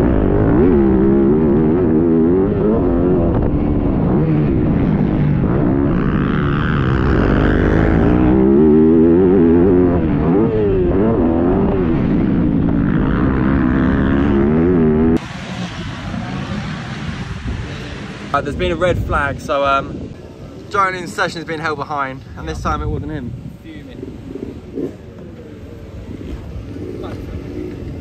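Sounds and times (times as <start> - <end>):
dirt bike engine revving: 0.0 - 18.3, 24.0 - 28.0
rushing wind noise: 0.0 - 28.0.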